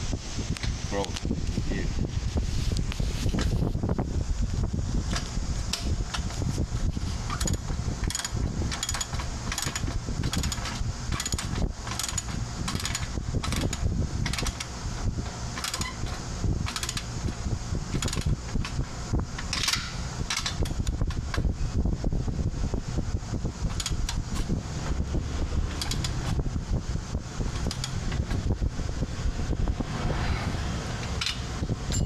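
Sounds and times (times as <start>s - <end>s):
steady low rumble: 0.0s - 32.0s
wrench clicking: 7.2s - 14.7s, 15.5s - 17.1s, 17.9s - 18.8s, 19.4s - 21.4s, 23.7s - 24.5s, 25.7s - 26.4s, 27.5s - 28.4s, 31.0s - 32.0s.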